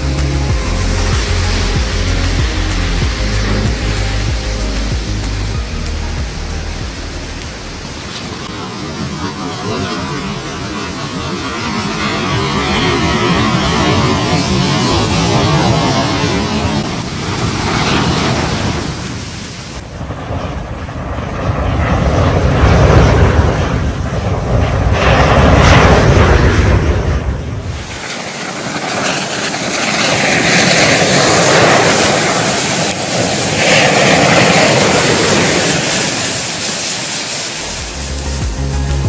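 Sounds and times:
burning matches rushing fire: 20.7 - 39.0.

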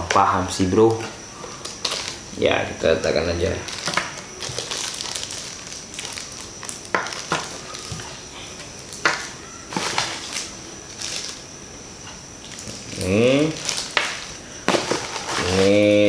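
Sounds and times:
plastic bags crinkling: 1.4 - 11.5, 12.4 - 15.8.

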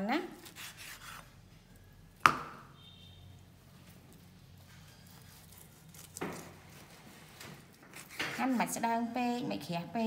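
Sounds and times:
knife striking cutting board: 2.2 - 2.6.

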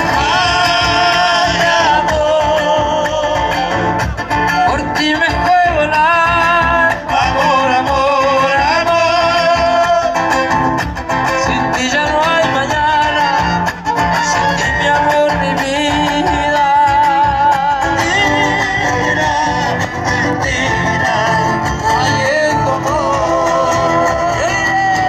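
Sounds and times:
person singing: 0.0 - 10.5, 11.2 - 25.0
strummed acoustic guitars: 0.0 - 25.0.

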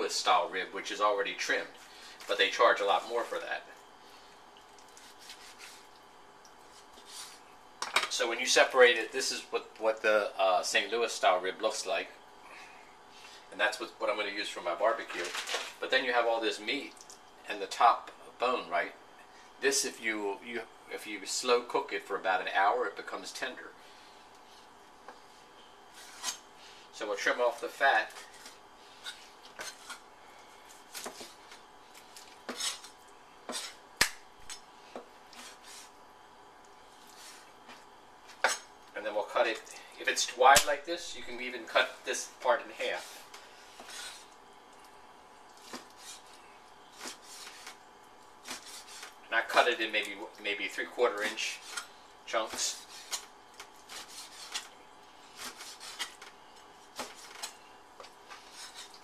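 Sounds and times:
blade rubbing through meat: 4.9 - 5.9, 25.9 - 26.4, 35.4 - 35.9, 45.6 - 47.8, 48.4 - 49.2, 52.5 - 54.7, 55.3 - 56.2, 58.3 - 59.0
cleaver scraping on cutting board: 5.0 - 5.9, 25.9 - 26.4, 28.2 - 30.0, 32.5 - 33.8, 35.4 - 35.9, 43.8 - 44.3, 45.6 - 47.8, 48.4 - 49.2, 52.5 - 54.7, 55.3 - 56.3, 57.0 - 59.0.

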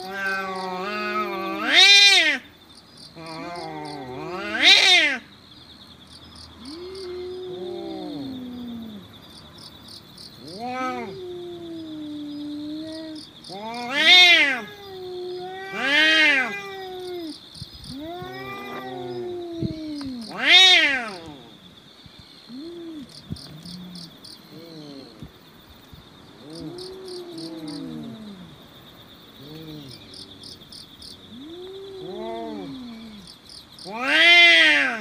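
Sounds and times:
cats yowling: 0.0 - 2.4, 3.2 - 5.2, 6.6 - 9.0, 10.4 - 21.5, 26.4 - 28.6, 31.3 - 35.0.

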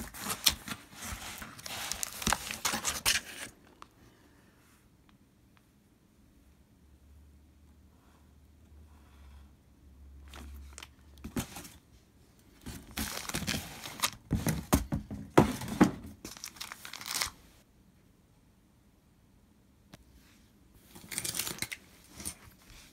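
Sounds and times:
plastic sleeve crinkling: 0.0 - 3.5, 16.2 - 17.4.

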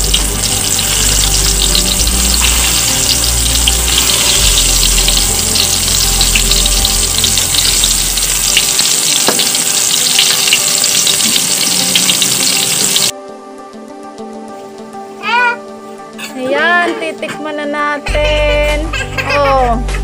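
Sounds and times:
deep-frying sizzle with crackling pops: 0.0 - 13.1.

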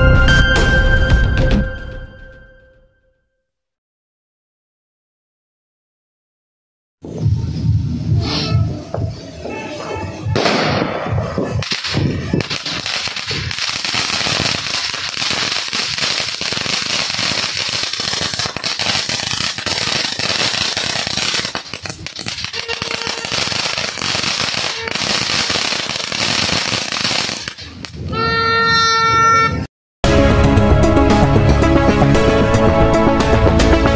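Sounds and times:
firework fountain hissing and crackling: 11.1 - 28.0.

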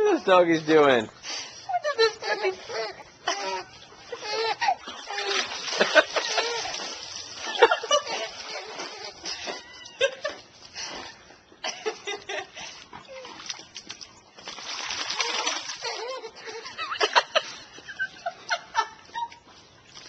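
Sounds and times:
woman laughing: 1.7 - 10.5, 11.6 - 12.8, 15.2 - 19.5
dogs splashing in water: 2.2 - 18.7.

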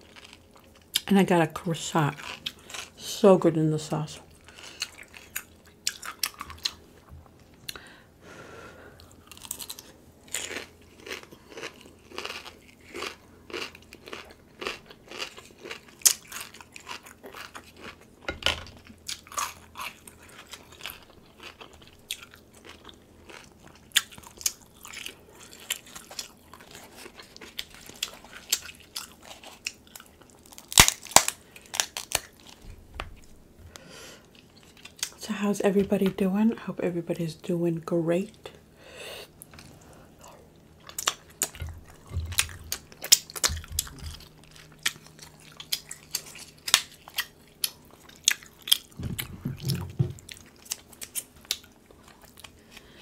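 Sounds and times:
chewing and crunching: 0.0 - 1.1, 1.8 - 3.0, 4.2 - 7.8, 9.0 - 33.3, 34.2 - 35.2, 39.4 - 53.0
crab shell cracking: 29.3 - 32.7, 40.9 - 49.0.

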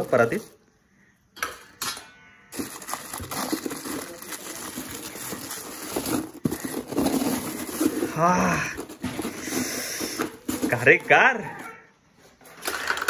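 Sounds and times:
plastic bag being handled: 0.0 - 0.6, 2.5 - 11.7
ice crackling and crunching: 2.5 - 11.3.

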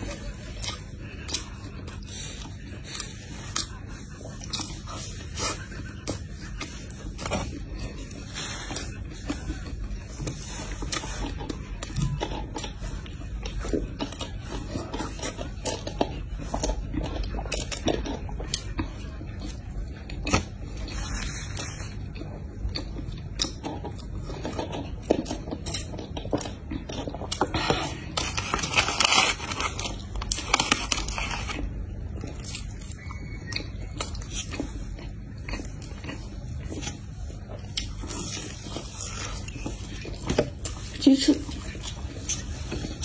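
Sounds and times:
chewing with mouth clicks: 0.0 - 43.0
paper wrapping crinkling: 28.1 - 31.7.

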